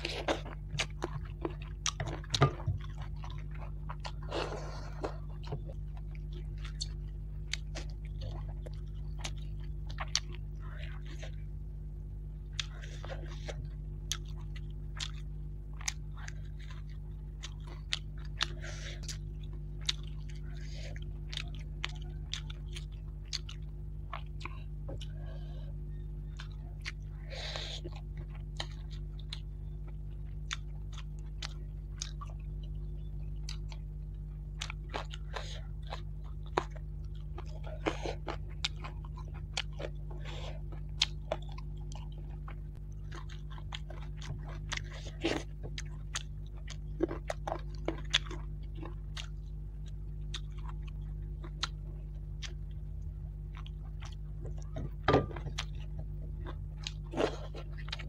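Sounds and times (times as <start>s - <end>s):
chewing with wet clicks: 0.0s - 58.0s
low hum: 0.0s - 58.0s.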